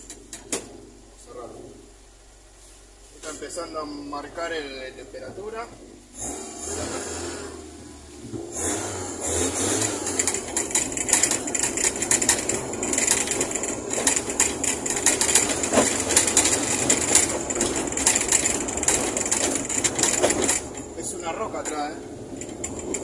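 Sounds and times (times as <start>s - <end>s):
race car engine running: 4.4s - 23.0s
rattling clicks: 9.9s - 23.0s.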